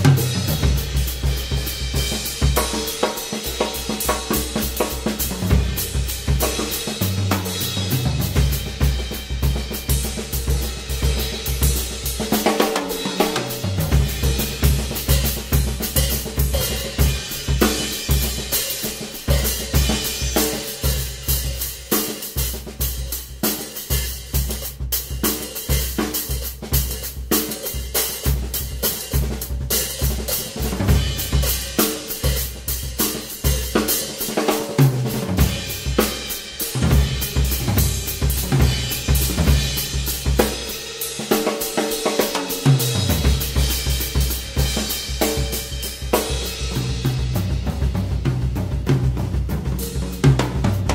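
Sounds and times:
bass drum beats: 0.0 - 2.8, 3.6 - 12.5, 13.1 - 18.5, 34.8 - 40.7, 42.6 - 50.9
drum kit playing: 0.0 - 50.9.

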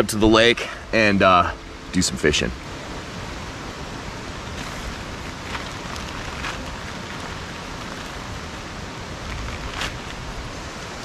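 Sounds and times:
steady rushing background noise: 0.0 - 11.0
nylon fabric rustling: 4.5 - 10.6.

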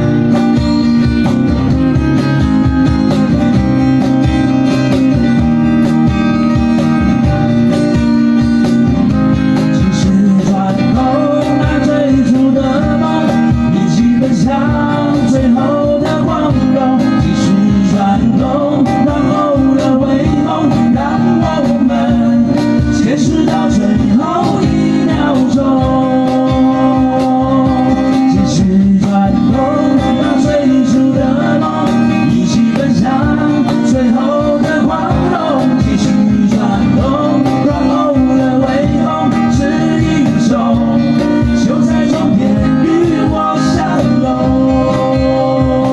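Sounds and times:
acoustic guitars strummed: 0.0 - 45.9
cajon beat: 0.0 - 45.9
man singing: 9.6 - 45.9.

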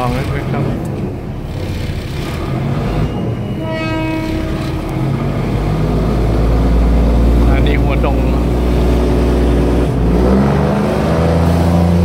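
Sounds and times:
engine rumbling: 0.0 - 12.0
train horn: 3.5 - 4.9.

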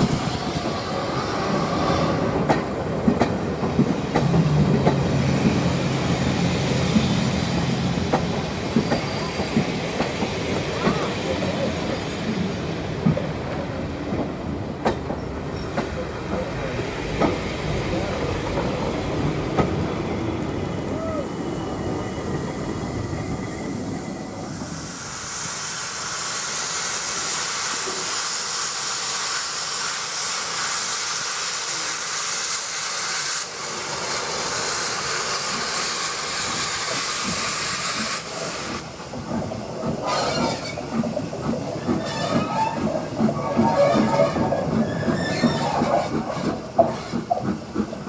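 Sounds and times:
loud hiss of steam: 0.0 - 48.0
low rumble of train: 0.0 - 48.0
rail clatter: 1.5 - 21.2, 35.4 - 48.0.

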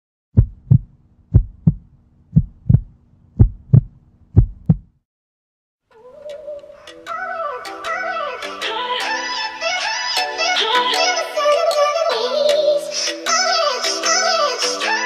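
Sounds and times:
heartbeat thumps: 0.4 - 5.0
music: 5.9 - 15.0.

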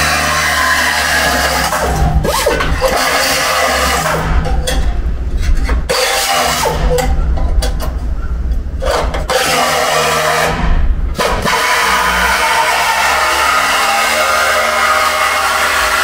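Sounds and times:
pneumatic drill cutting steel: 0.0 - 4.9, 5.5 - 7.1, 8.8 - 16.0.

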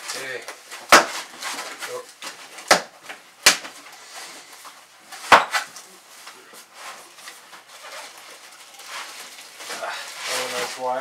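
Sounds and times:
cardboard rustling and scraping: 0.0 - 2.7, 5.1 - 11.0.

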